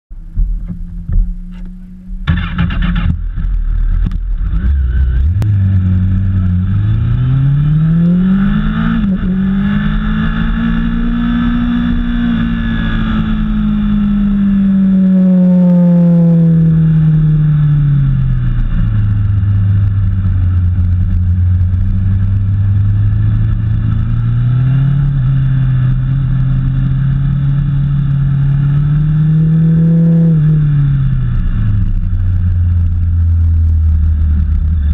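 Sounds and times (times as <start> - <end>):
vehicle engine accelerating: 0.1 - 34.9
engine crackly burst: 0.2 - 5.1.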